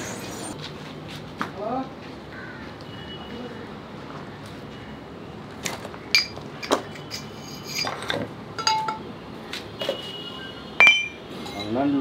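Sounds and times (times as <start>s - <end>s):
metal parts clinking: 6.2s - 9.0s, 10.8s - 11.2s.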